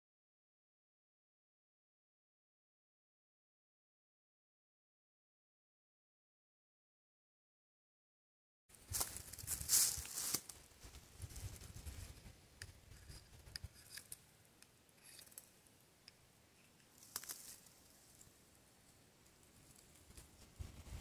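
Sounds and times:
fire striker clicks and scrapes: 0:12.6 - 0:15.5.

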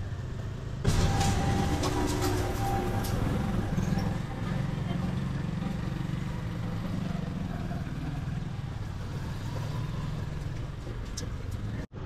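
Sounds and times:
street traffic noise: 0:00.0 - 0:12.0
small motorcycle engine running: 0:03.5 - 0:10.7.

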